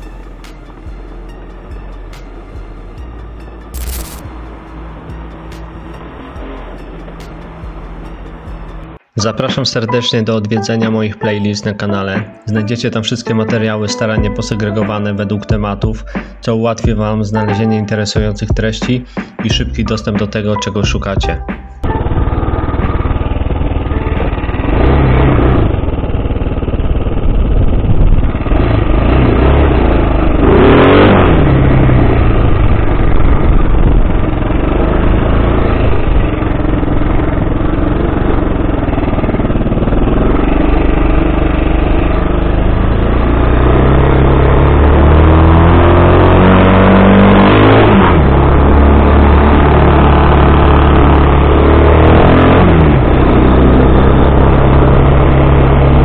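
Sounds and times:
quad bike engine revving: 21.8 - 56.0.

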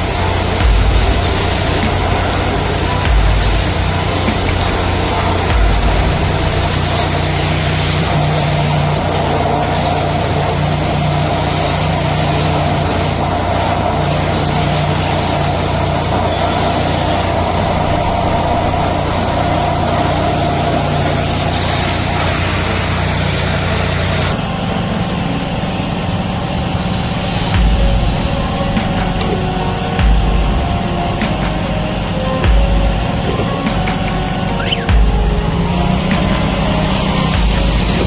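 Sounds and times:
water jet hissing against board: 0.0 - 24.4
engine droning: 0.0 - 38.0.

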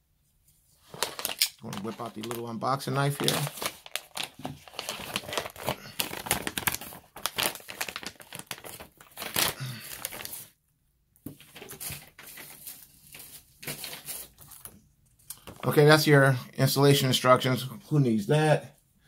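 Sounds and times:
plastic pouch crinkling: 0.9 - 10.5.

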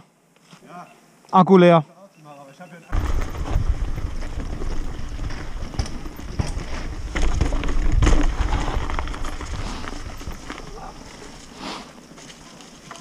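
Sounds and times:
bike rattling over bumps: 2.9 - 11.6
bike tyres rumbling on dirt: 2.9 - 13.0.

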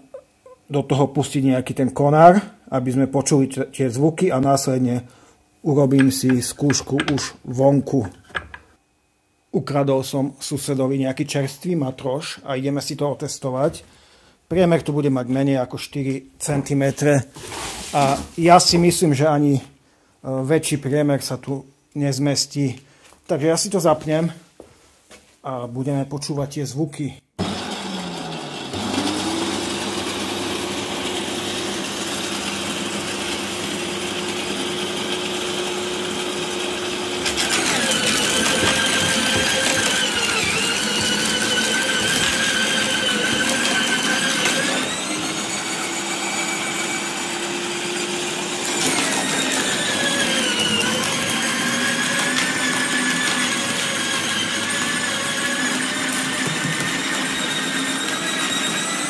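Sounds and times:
electric shredder motor hum: 27.4 - 59.0.

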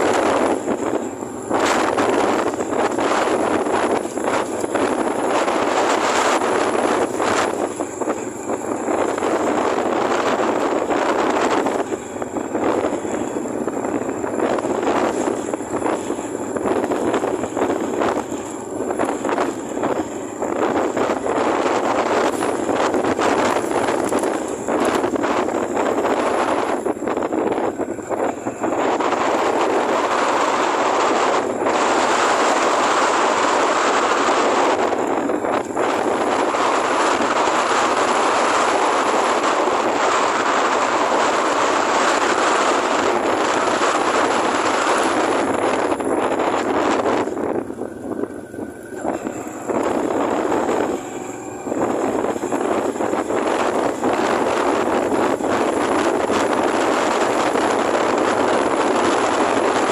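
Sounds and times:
road noise: 0.0 - 59.9
thin high whine: 0.0 - 59.9
wind buffeting microphone: 0.0 - 59.9
wind rushing: 0.0 - 59.9.

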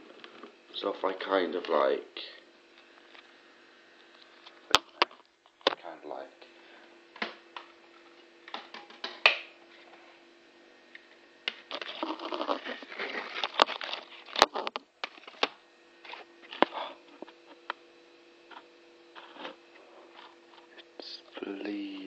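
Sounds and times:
steady low hum: 0.0 - 22.0
phone rubbing and scraping: 11.7 - 15.4, 18.5 - 20.8.

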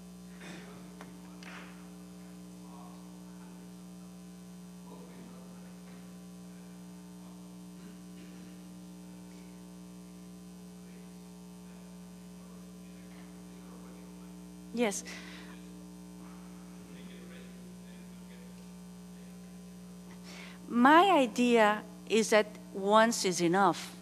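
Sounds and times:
electrical mains hum: 0.0 - 24.0.

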